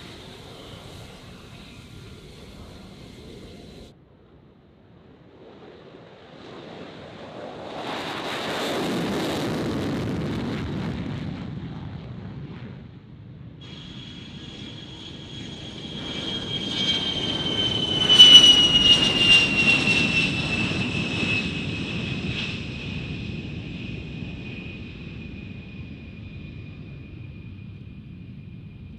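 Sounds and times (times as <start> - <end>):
jet engine taking off: 0.0 - 4.0, 5.0 - 28.9
high turbofan engine whine: 0.0 - 28.9.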